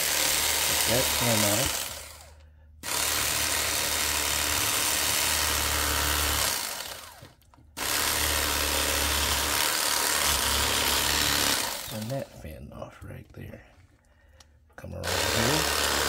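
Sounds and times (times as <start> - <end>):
electric knife motor buzzing: 0.0 - 12.1, 15.0 - 16.0.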